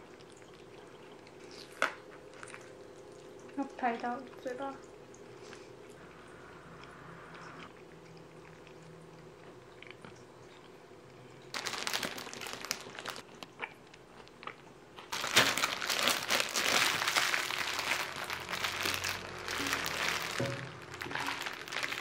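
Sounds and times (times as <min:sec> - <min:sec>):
plastic bag crinkling: 0:11.5 - 0:13.6, 0:15.0 - 0:22.0.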